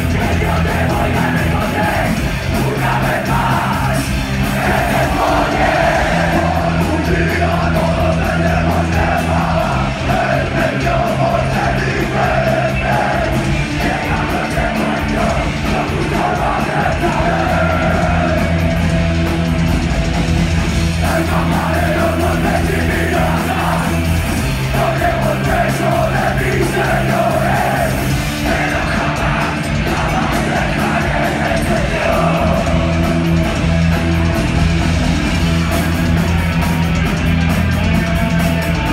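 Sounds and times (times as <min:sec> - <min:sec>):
shouted vocals: 0:00.0 - 0:18.8, 0:20.9 - 0:33.4
live punk band playing: 0:00.0 - 0:38.9.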